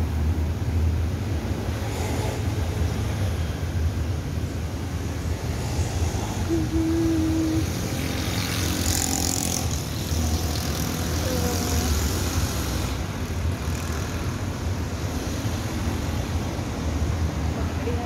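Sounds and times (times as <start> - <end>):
cars driving past: 0.0 - 18.0.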